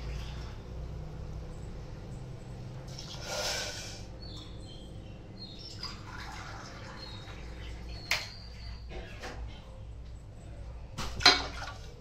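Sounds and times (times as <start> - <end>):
water pouring and dripping: 2.9 - 3.3, 5.6 - 8.4, 11.0 - 12.0.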